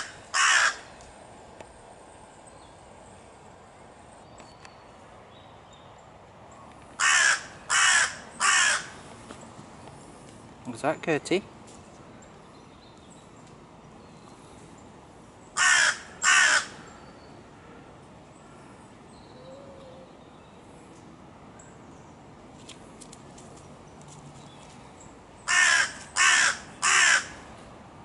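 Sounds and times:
crow cawing: 0.0s - 0.9s, 7.0s - 9.0s, 15.6s - 16.8s, 25.5s - 27.4s.

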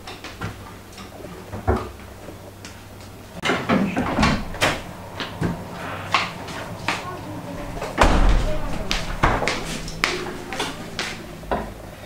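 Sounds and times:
door and shelves rattling: 3.4s - 11.8s.

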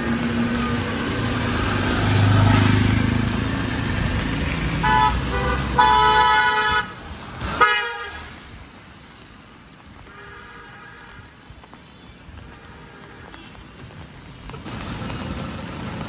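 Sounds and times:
passing vehicle engine rumbling: 0.0s - 7.6s
vehicle horn honking: 4.8s - 6.9s, 7.6s - 8.2s.

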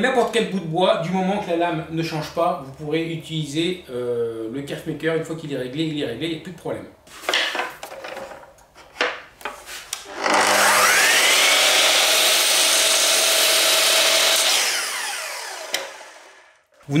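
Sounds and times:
saw blade cutting wood: 10.0s - 16.5s
mitre saw motor whining: 10.0s - 16.7s.

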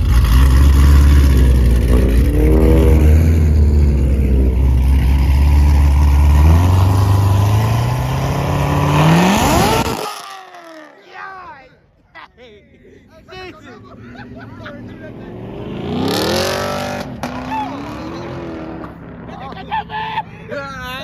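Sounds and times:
car engine revving: 0.0s - 10.2s, 13.8s - 20.0s.

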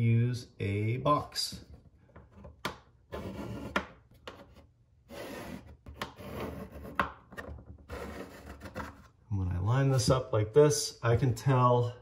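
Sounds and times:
pencil scratching on plywood: 3.1s - 7.2s, 7.9s - 9.1s.

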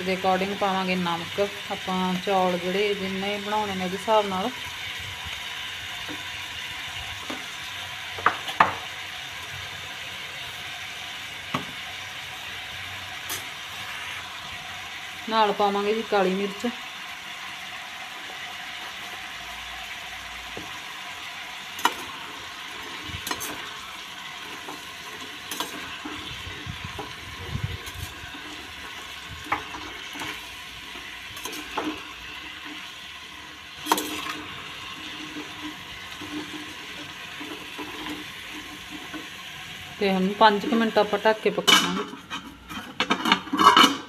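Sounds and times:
vegetables sizzling in a pan: 0.0s - 44.0s
spatula scraping a pan: 12.4s - 14.5s, 19.9s - 44.0s.

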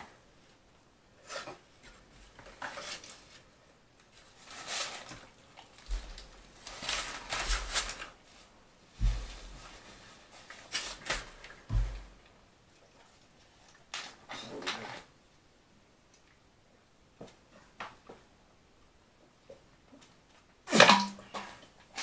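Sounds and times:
rustling: 1.2s - 12.3s.

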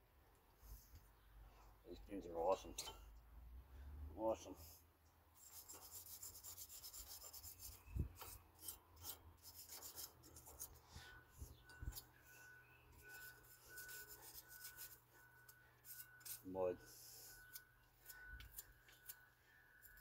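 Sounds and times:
rubbing and scraping of brake parts: 5.4s - 20.0s
faint pulsing high tone: 10.2s - 20.0s.

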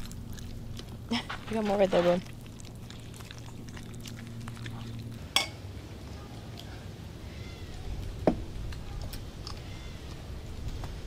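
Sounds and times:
low steady hum: 0.0s - 11.0s
small dog eating: 0.0s - 11.0s.

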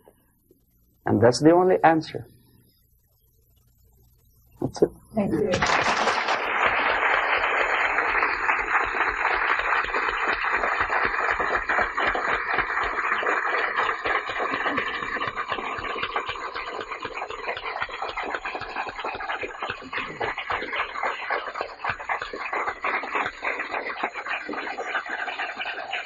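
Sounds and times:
audience applauding: 5.5s - 26.0s.

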